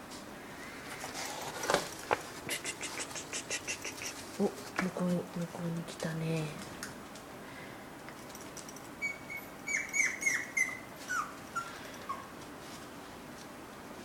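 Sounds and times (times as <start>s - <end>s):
puppy whining and yipping: 9.0s - 12.4s.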